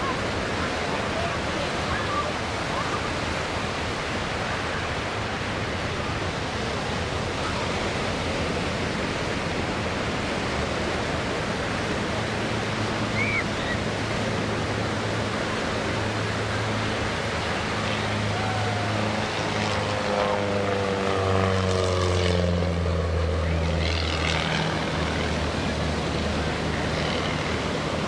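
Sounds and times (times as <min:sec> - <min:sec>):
propeller plane engine drone: 0:00.0 - 0:28.0
surf rushing on beach: 0:00.0 - 0:28.0.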